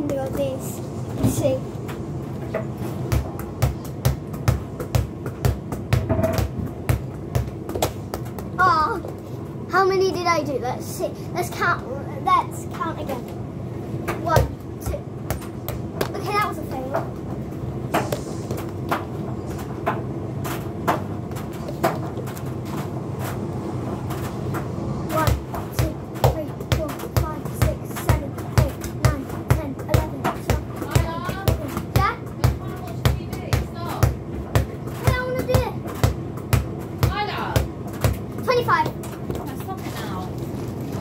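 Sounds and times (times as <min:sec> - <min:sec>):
steady low hum: 0:00.0 - 0:41.0.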